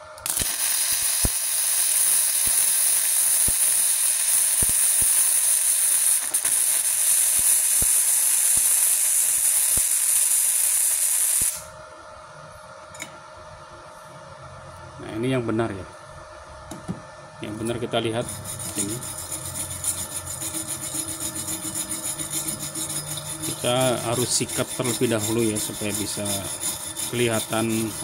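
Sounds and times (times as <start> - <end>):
welding arc hissing and popping: 0.2 - 11.7, 18.2 - 28.0.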